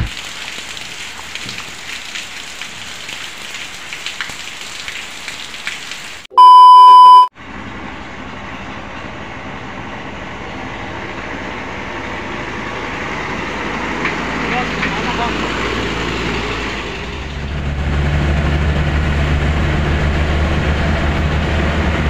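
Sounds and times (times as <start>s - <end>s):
rain pattering: 0.0s - 6.3s
loud electronic beep: 6.3s - 7.3s.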